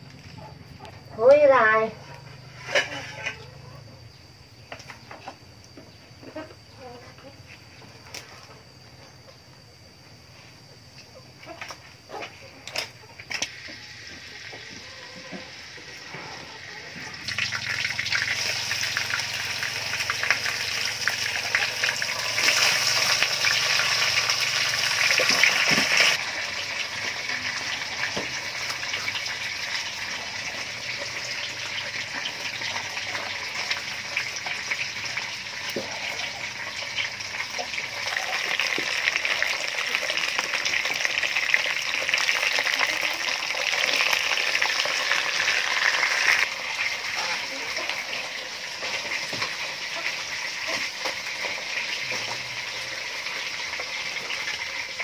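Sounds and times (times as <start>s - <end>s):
fish sizzling in hot oil: 13.3s - 14.8s, 15.5s - 55.0s.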